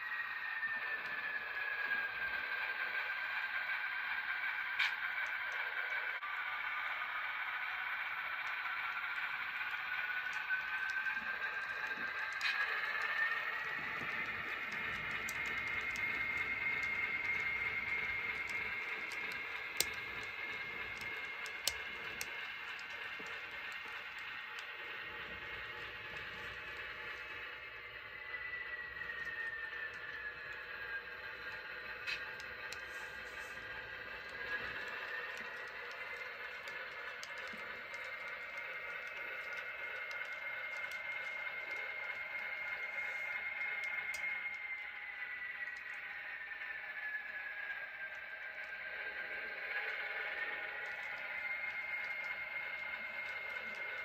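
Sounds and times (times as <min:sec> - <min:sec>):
model train cars rolling: 0:00.0 - 0:54.0
wheels ticking over rails: 0:00.8 - 0:54.0
sharp clicks: 0:09.2 - 0:46.0.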